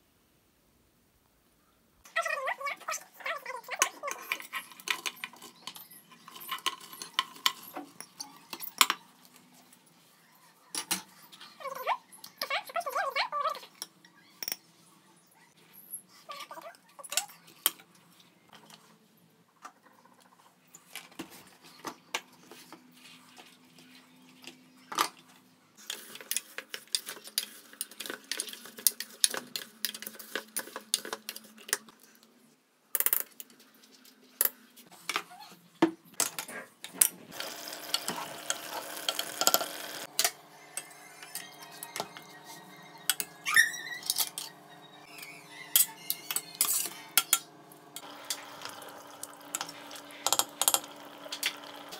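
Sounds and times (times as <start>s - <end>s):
spoon stirring and scraping pot: 3.7s - 9.4s, 37.9s - 51.9s
utensils clinking against metal pot: 3.8s - 9.0s, 43.0s - 43.4s, 44.0s - 44.6s, 45.2s - 51.9s.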